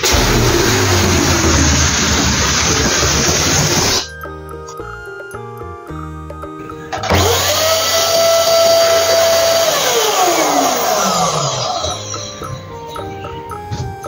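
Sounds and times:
small electric motor whine: 7.0 - 12.5.

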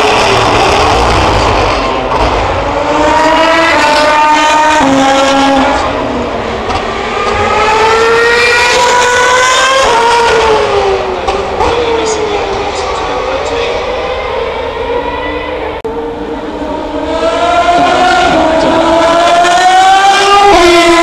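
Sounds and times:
racing car engines at high revs: 0.0 - 21.0.

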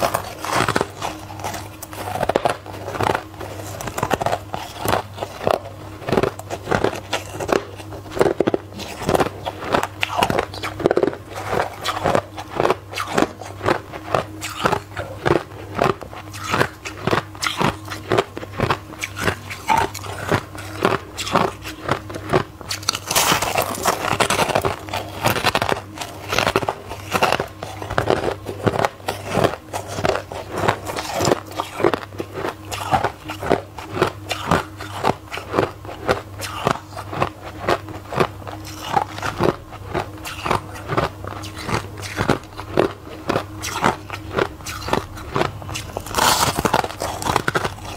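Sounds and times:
steady low hum: 0.0 - 47.9
ice being crunched: 18.6 - 33.6, 43.6 - 47.9.

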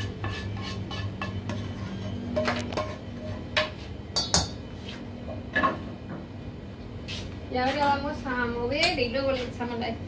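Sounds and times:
frying pan scraping steel bowl: 0.0 - 3.8.

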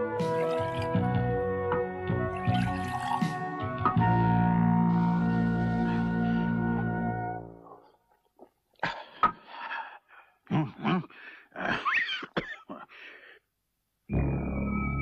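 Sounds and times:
held music notes: 0.0 - 7.8
man coughing and gasping: 8.8 - 13.1.

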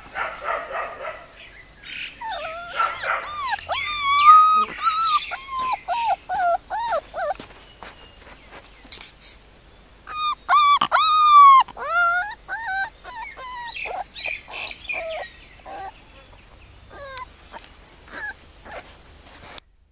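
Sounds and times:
puppy whining and whimpering: 2.1 - 7.9, 10.1 - 16.3, 16.9 - 18.9.

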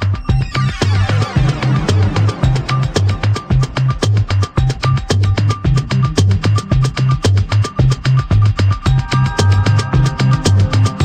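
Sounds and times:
pulsing bass line: 0.0 - 11.0
sharp percussion hits: 0.9 - 6.9, 8.8 - 11.0.

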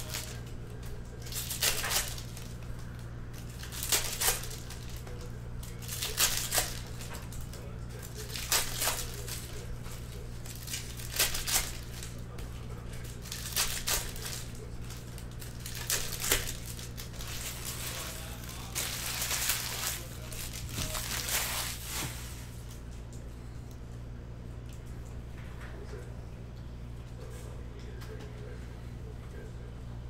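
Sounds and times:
plastic wrapping crinkling: 0.0 - 22.9
low electrical hum: 0.0 - 30.0.

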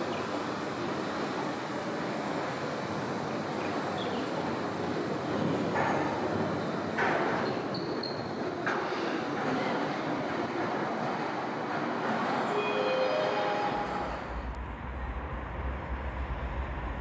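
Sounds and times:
monorail car rushing: 0.0 - 17.0.

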